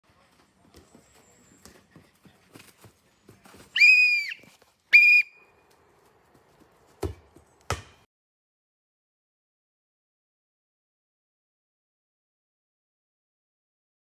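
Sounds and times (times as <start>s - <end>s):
whistle blasts: 3.8s - 5.5s
football being kicked: 7.0s - 8.0s.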